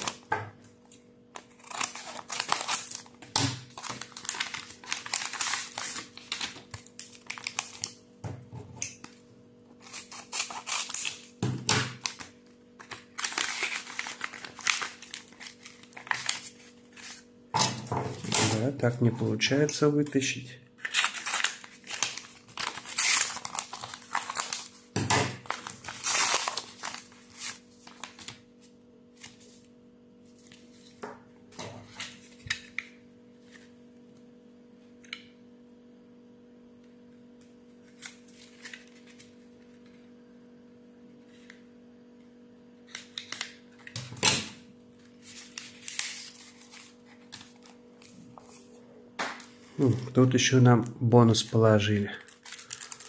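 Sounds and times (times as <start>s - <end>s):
paper rustling and crinkling: 0.0s - 8.0s, 9.8s - 17.3s, 20.8s - 31.0s, 31.8s - 32.8s, 37.8s - 40.0s, 42.9s - 44.2s, 45.0s - 48.8s, 51.4s - 53.0s
faint steady hum: 0.0s - 53.0s
scissors cutting paper: 1.4s - 3.1s, 3.8s - 7.9s, 9.8s - 11.3s, 12.0s - 17.2s, 20.8s - 24.7s.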